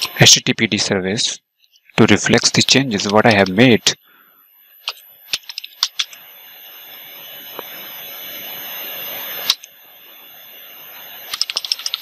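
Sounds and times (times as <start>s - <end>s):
faint high whine: 0.0s - 12.0s
keyboard keystrokes: 4.9s - 6.2s, 11.3s - 12.0s.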